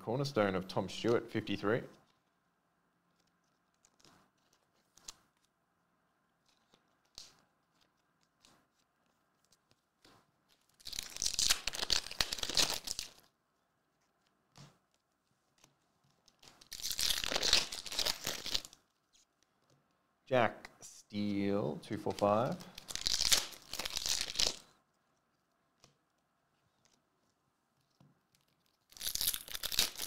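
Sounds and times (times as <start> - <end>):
foil wrapper tearing and crinkling: 10.5 - 13.3, 16.4 - 18.9, 22.6 - 24.7, 28.4 - 30.0.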